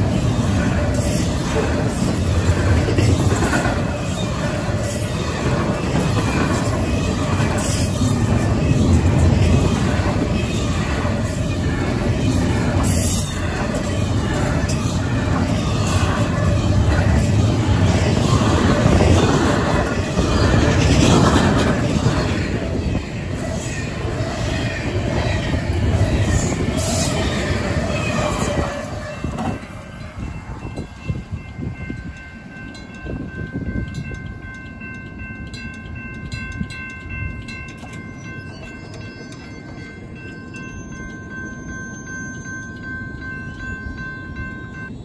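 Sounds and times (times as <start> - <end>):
freight train clattering past: 0.0 - 45.0
electronic crossing bell tone: 29.2 - 45.0.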